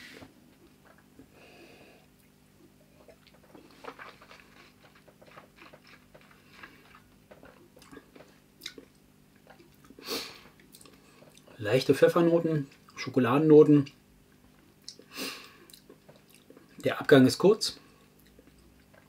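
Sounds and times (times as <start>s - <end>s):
wet mouth clicks and lip smacks: 14.8s - 15.1s.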